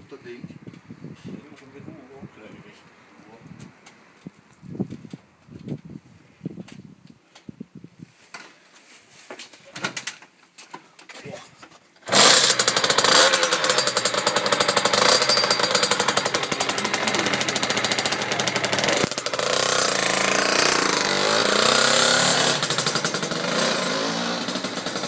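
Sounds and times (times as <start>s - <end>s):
two-stroke moped engine: 12.0s - 25.0s.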